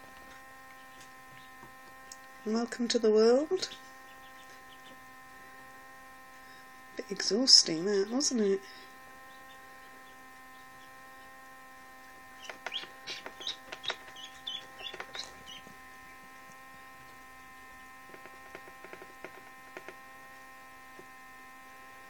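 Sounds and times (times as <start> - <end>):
steady electrical hum: 0.0 - 22.0
duckling peeping: 0.7 - 1.6, 3.5 - 5.0, 7.8 - 11.4, 12.3 - 20.0.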